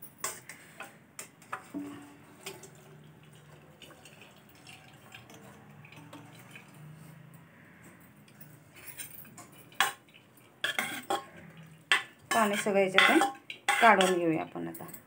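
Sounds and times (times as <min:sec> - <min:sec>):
water trickling and dripping: 0:01.7 - 0:15.0
water pouring into strainer: 0:02.2 - 0:07.3.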